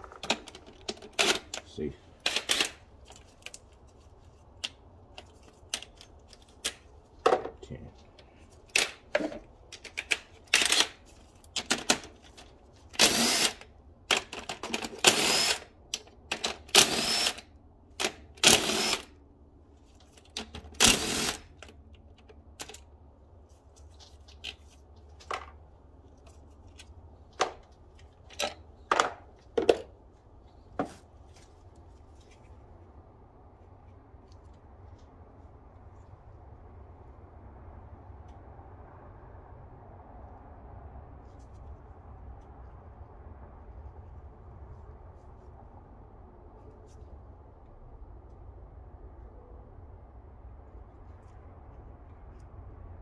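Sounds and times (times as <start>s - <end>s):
cordless power tool spinning bolts: 13.0s - 15.7s, 16.3s - 19.1s, 20.5s - 21.7s
tools and parts clinking: 24.0s - 30.0s.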